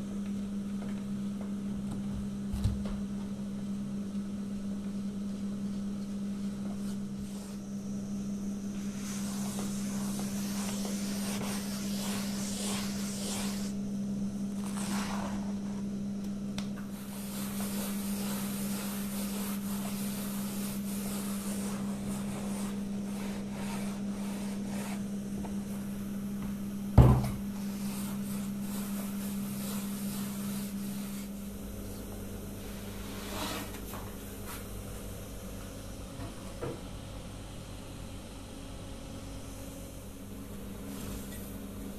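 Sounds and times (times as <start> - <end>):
steady low hum: 0.0 - 41.9
hands rubbing bread dough: 8.8 - 13.8, 16.9 - 25.1.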